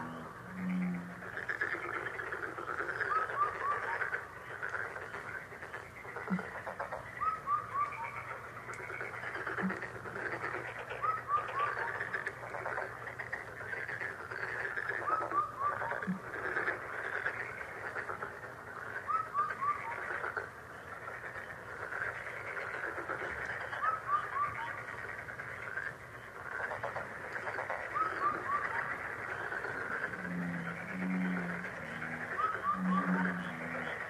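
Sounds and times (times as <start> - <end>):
chorus of bird calls: 0.0 - 34.0.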